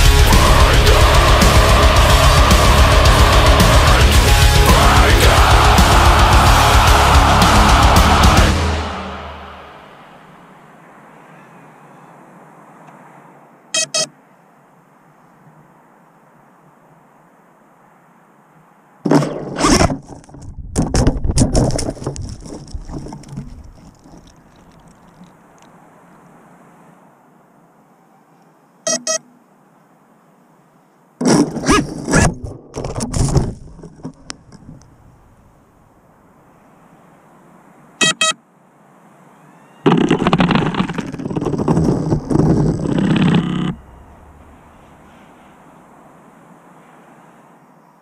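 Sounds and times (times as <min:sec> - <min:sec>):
short electronic beeps: 0:13.7 - 0:14.1, 0:28.9 - 0:29.4, 0:38.0 - 0:38.4
faint hiss: 0:42.0 - 0:48.0.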